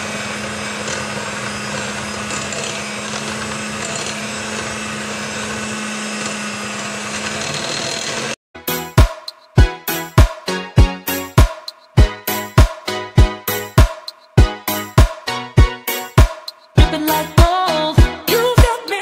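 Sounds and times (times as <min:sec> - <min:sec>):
electric hand mixer running: 0:00.0 - 0:08.4.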